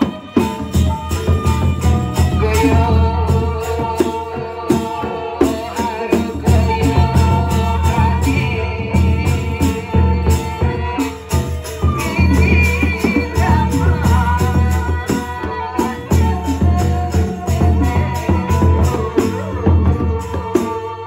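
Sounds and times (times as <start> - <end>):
bamboo flute melody: 0.0 - 4.0, 10.0 - 21.0
cymbals: 0.0 - 21.0.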